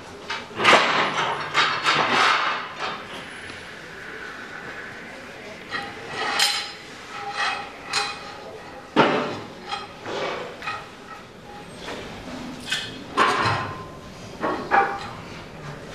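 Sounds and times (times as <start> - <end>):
metal clanks with ringing: 5.7 - 11.3.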